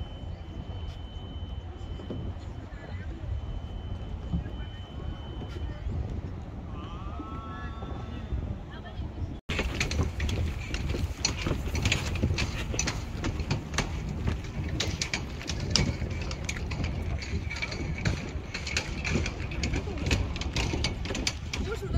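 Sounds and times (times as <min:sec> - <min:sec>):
wind rumbling on microphone: 0:00.0 - 0:21.9
footsteps clicking: 0:09.5 - 0:21.9.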